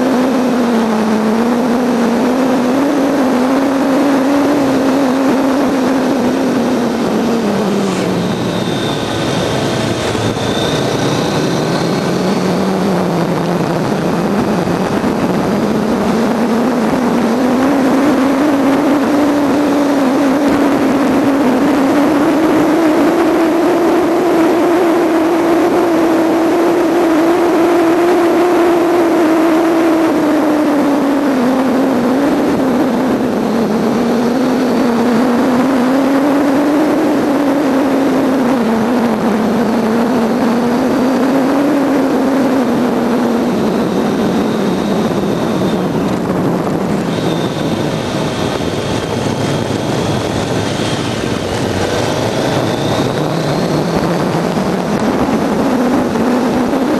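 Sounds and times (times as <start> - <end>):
motorcycle engine running: 0.0 - 56.9
wind and road noise: 0.0 - 56.9.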